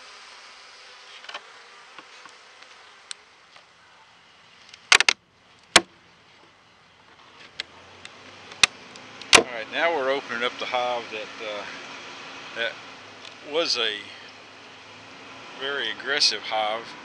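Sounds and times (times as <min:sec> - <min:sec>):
bees buzzing: 0:00.0 - 0:05.0, 0:05.6 - 0:17.0
sharp clicks and knocks: 0:04.7 - 0:05.9.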